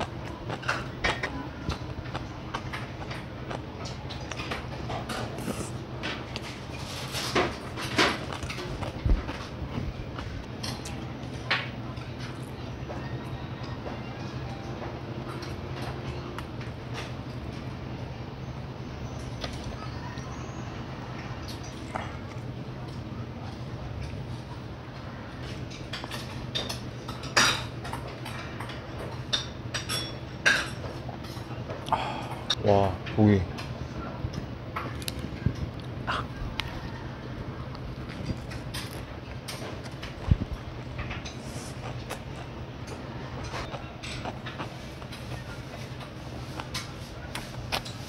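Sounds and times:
wet mouth sounds: 0.0 - 6.7, 35.0 - 36.8, 39.8 - 42.7
person chewing rice: 0.0 - 13.8, 21.1 - 32.6, 34.8 - 48.0
steady low hum: 0.0 - 48.0.

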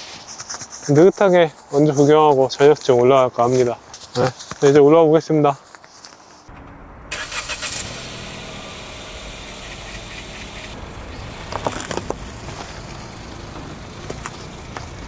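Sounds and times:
car engine running: 6.5 - 15.0.

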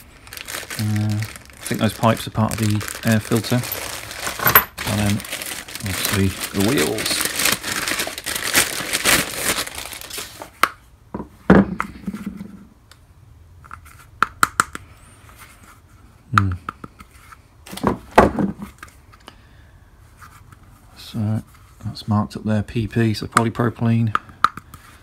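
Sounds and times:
plastic bag crinkling: 0.0 - 10.5.

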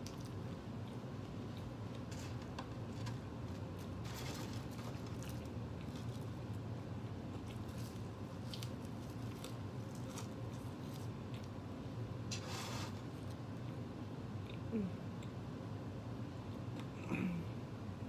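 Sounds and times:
person chewing food: 0.0 - 4.0, 4.7 - 11.8
steady low hum: 0.0 - 18.0
food handling clicks and rustles: 1.5 - 6.5.

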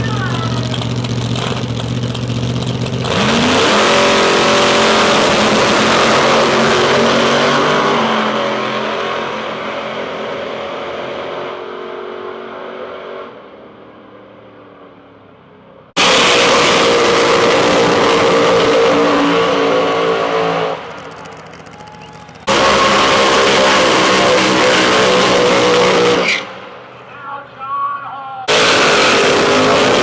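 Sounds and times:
drag cars idling: 0.0 - 3.6, 20.6 - 27.0
drag racing cars launching: 0.0 - 15.0, 16.0 - 27.5, 28.4 - 30.0.

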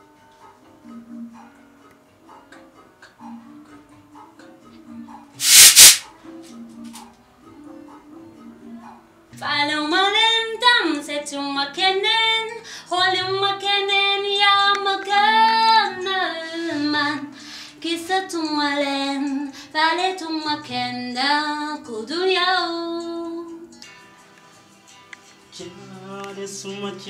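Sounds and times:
singer breathing: 17.3 - 17.8.

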